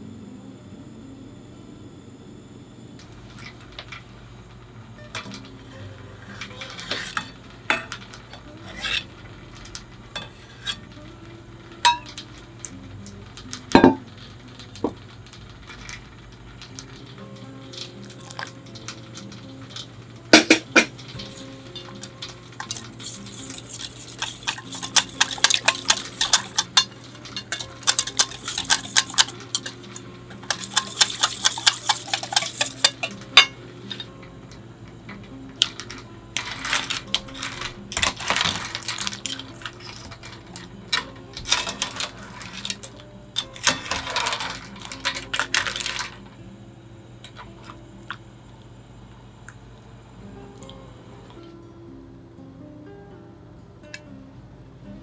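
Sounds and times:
utensil clinking and scraping bowl: 0:05.1 - 0:11.0, 0:11.8 - 0:34.2, 0:35.2 - 0:46.4
stirring clams in pot: 0:11.8 - 0:34.1, 0:35.2 - 0:46.4.

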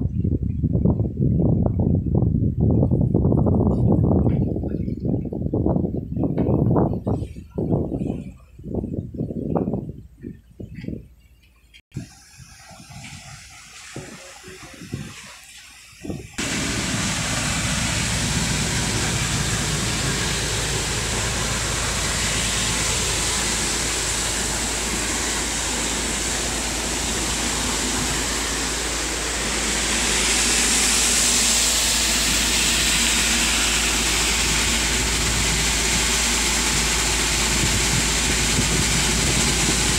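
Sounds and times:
rushing and splashing water: 0:12.0 - 0:39.9
heavy engine drone: 0:16.3 - 0:39.9.

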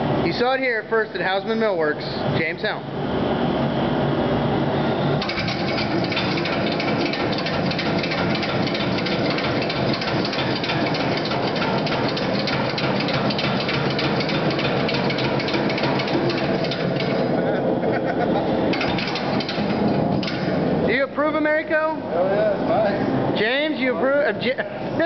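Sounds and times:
power hammer striking steel: 0:05.2 - 0:17.4, 0:18.7 - 0:20.7.

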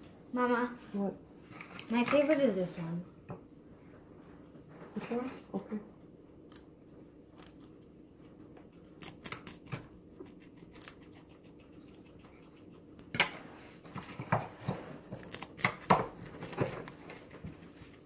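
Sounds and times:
guinea pig crunching celery: 0:01.7 - 0:02.9, 0:06.0 - 0:18.0.

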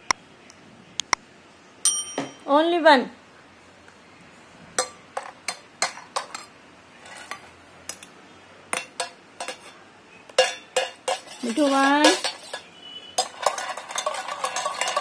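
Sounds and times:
spoon clinking against metal bowl: 0:01.9 - 0:02.4, 0:08.7 - 0:15.0.

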